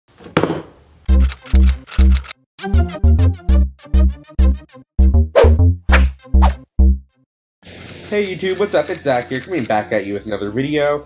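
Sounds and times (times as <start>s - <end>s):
bass-heavy beat: 2.7s - 7.0s.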